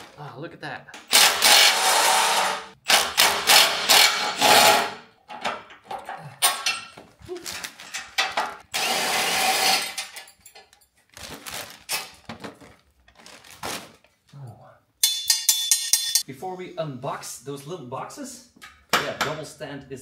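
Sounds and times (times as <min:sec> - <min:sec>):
cordless drill running: 0:01.1 - 0:05.0, 0:08.7 - 0:10.0
metal parts clicking and clattering: 0:05.3 - 0:08.6, 0:09.8 - 0:11.2.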